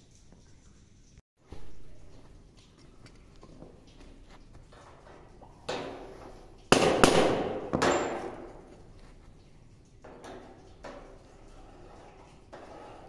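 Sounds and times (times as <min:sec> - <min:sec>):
hammer striking punch on steel: 0:06.7 - 0:08.4
divider scraping on metal: 0:11.2 - 0:13.0.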